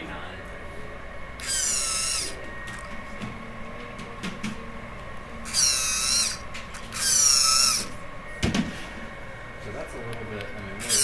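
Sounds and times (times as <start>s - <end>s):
servo motor whining: 1.4s - 3.0s, 5.4s - 8.0s, 10.8s - 11.0s.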